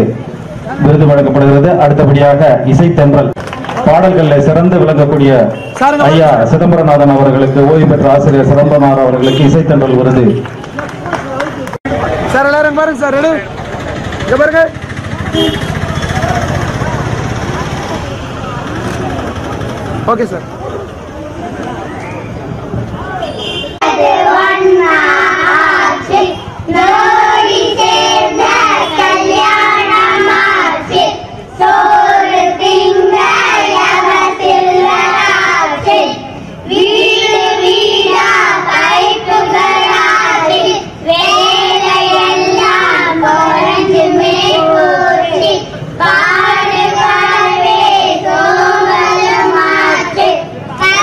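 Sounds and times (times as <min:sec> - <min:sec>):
children singing into microphone: 0:23.8 - 0:51.0.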